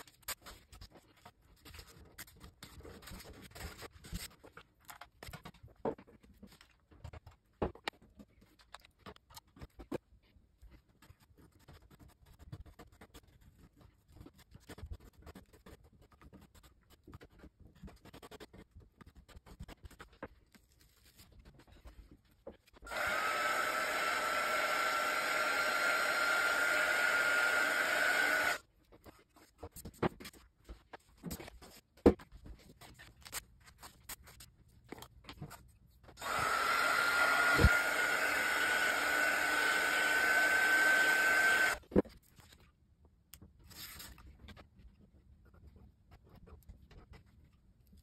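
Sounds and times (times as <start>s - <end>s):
loud whirring with high whine: 22.9s - 28.6s, 36.2s - 41.8s.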